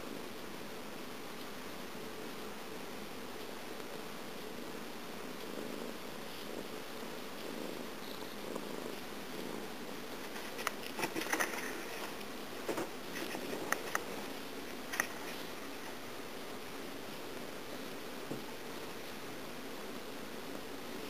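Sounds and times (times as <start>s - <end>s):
cat purring: 0.0s - 21.0s
scratchy rustles and clicks: 7.4s - 16.2s.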